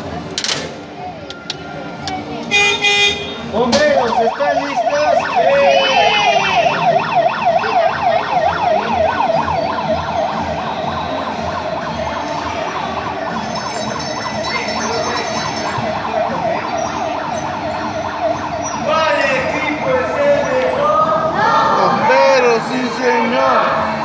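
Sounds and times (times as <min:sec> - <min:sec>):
fire truck siren yelping: 0:03.7 - 0:20.9.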